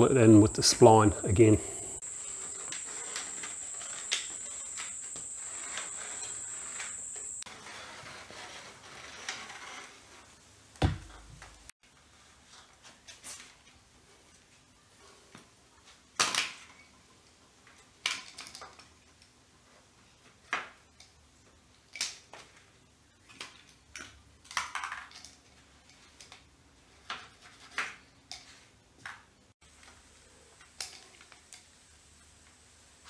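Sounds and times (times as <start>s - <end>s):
spline roller clicking and scraping: 2.1s - 10.4s.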